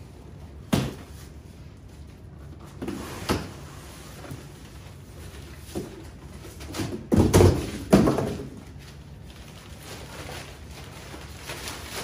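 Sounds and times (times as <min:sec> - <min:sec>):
cardboard box thudding on concrete: 0:06.7 - 0:08.5.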